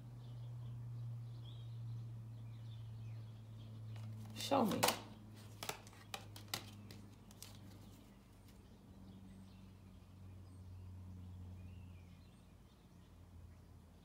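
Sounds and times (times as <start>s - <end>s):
cards clicking laid down: 4.0s - 8.0s.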